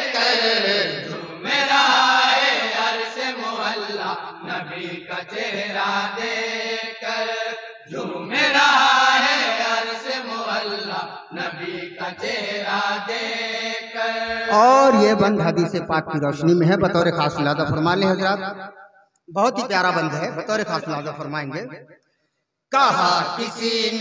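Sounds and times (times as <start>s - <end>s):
men chanting unaccompanied: 0.0s - 15.3s.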